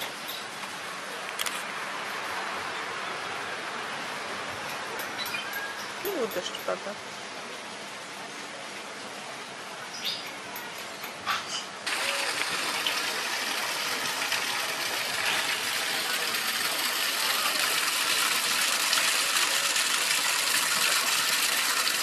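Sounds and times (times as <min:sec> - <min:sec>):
waterfall splashing into pond: 0:11.8 - 0:22.0.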